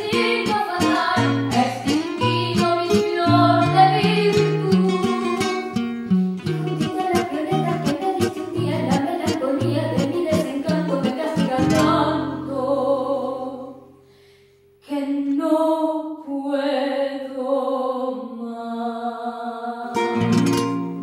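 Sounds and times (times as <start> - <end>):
woman singing: 0.0 - 5.7, 6.5 - 13.8, 14.8 - 20.2
acoustic guitars plucked: 0.0 - 14.1, 19.9 - 21.0.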